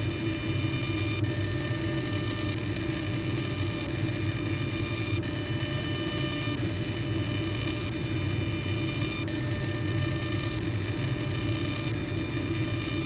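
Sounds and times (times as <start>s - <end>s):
laser engraving machine hum: 0.0s - 13.0s.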